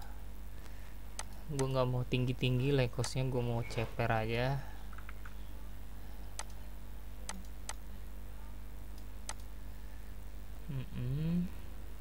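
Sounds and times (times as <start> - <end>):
low electrical hum: 0.0 - 12.0
computer mouse clicking: 4.9 - 5.4, 6.4 - 6.6, 9.0 - 9.5.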